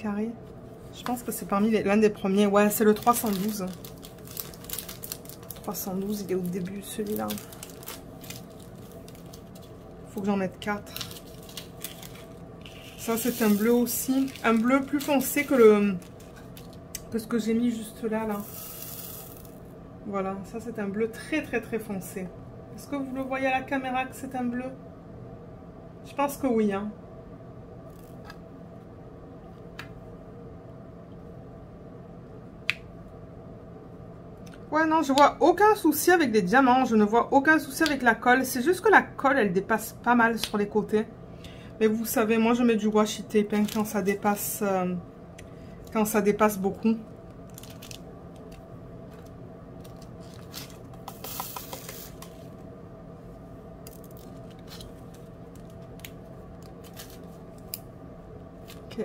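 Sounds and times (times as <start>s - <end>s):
steady low hum: 0.0s - 59.0s
plastic film rustling: 2.4s - 16.9s, 43.5s - 44.2s, 47.2s - 52.6s, 53.9s - 57.8s.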